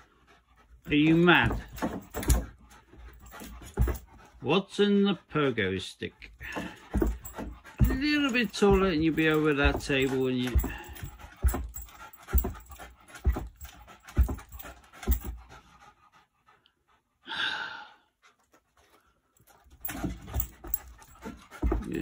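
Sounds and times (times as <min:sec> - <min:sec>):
dog panting: 0:00.0 - 0:17.2, 0:18.1 - 0:22.0
dog landing thuds on carpet: 0:06.6 - 0:15.4.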